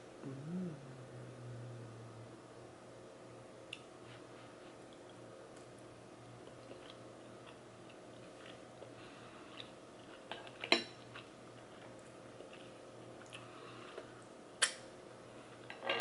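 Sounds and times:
chewing food: 0:06.4 - 0:14.2.

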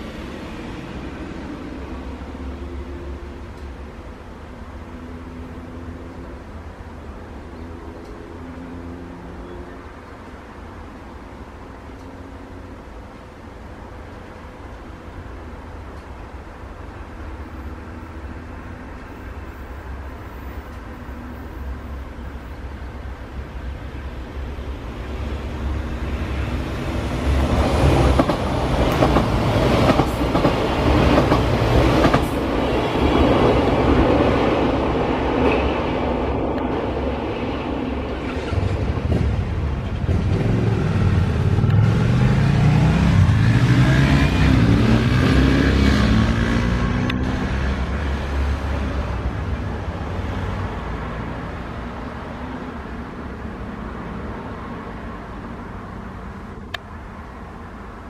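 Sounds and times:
train engine rumbling: 0:00.0 - 0:46.5
train wheels clattering: 0:27.2 - 0:34.0.

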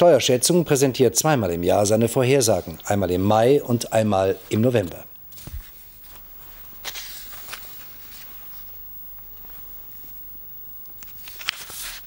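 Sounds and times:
paper rustling: 0:05.3 - 0:10.2, 0:10.9 - 0:12.0.

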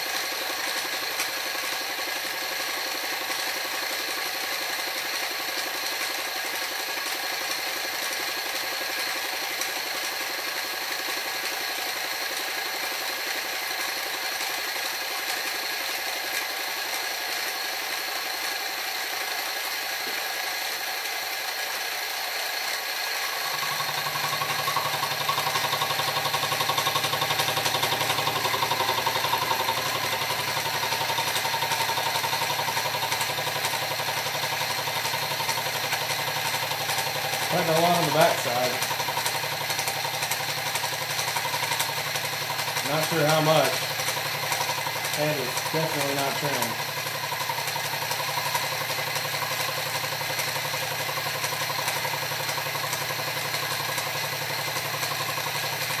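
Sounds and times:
mill spindle motor running: 0:00.0 - 0:56.0
flycutter whine cutting metal: 0:14.0 - 0:56.0.

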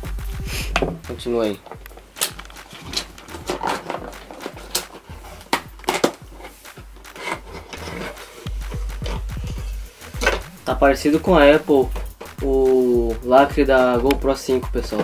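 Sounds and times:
cardboard and plastic packaging scraping: 0:01.6 - 0:10.5
box knocks and snaps: 0:02.2 - 0:06.2.

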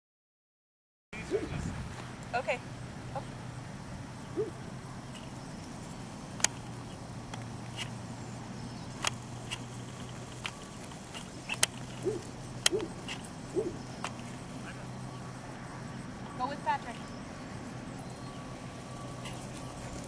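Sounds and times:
steady low hum: 0:01.2 - 0:20.0
sharp clicks: 0:06.4 - 0:06.7, 0:08.9 - 0:14.3.

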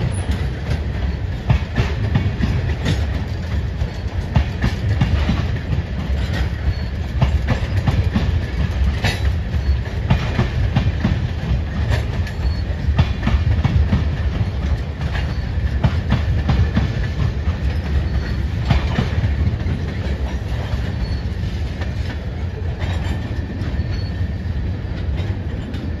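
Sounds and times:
train wheels rumbling on rail: 0:00.0 - 0:26.0
wheels clacking over rail joints: 0:00.0 - 0:26.0
faint high wheel squeal: 0:06.2 - 0:07.9, 0:09.2 - 0:10.0, 0:12.2 - 0:12.9, 0:15.2 - 0:15.7, 0:17.7 - 0:19.0, 0:19.6 - 0:24.7.

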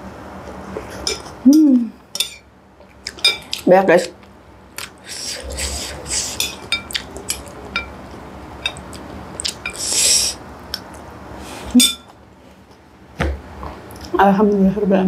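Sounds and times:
slurping noodles: 0:05.0 - 0:07.4
metal spoon clinking on glass bowl: 0:11.8 - 0:12.1.

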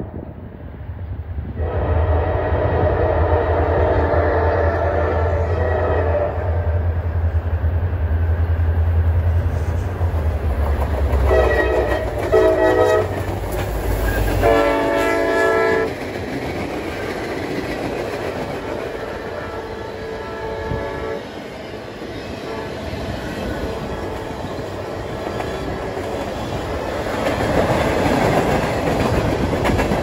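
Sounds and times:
diesel locomotive engines: 0:00.0 - 0:30.0
train horn blasts: 0:01.6 - 0:07.0, 0:11.2 - 0:13.3, 0:14.1 - 0:15.9, 0:18.6 - 0:21.3, 0:22.4 - 0:22.8, 0:23.6 - 0:25.4
freight cars rolling on rails: 0:07.2 - 0:30.0.

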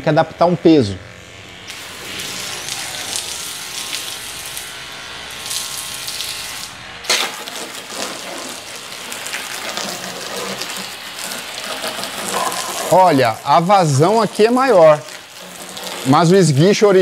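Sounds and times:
water jet hissing and splashing: 0:01.7 - 0:17.0.

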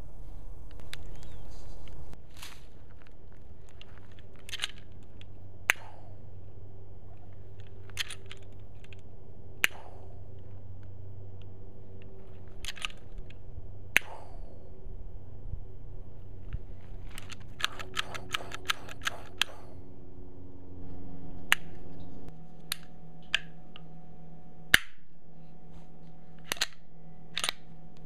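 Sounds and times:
pistol hammer snapping: 0:09.6 - 0:10.1, 0:12.6 - 0:14.4, 0:17.2 - 0:19.7, 0:24.7 - 0:25.0, 0:26.4 - 0:27.7.

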